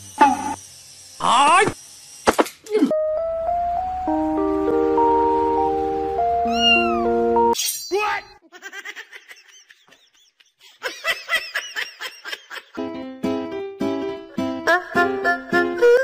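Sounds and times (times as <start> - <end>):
background music: 2.9 - 7.6, 12.8 - 16.0
cat meowing and chirping: 6.4 - 7.1.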